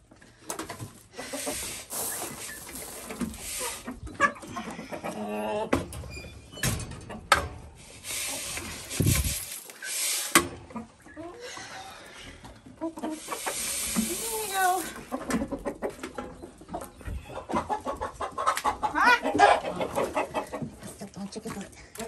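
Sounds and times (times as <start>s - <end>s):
hens clucking: 0.0s - 6.0s, 7.1s - 21.0s
grain poured into feeder: 1.2s - 4.0s, 8.0s - 10.4s, 13.1s - 15.0s.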